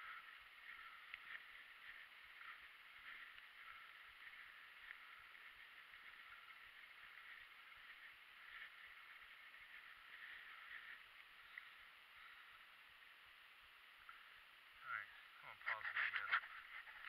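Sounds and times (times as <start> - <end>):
bike tyres crackling on leaves: 0.0 - 12.6.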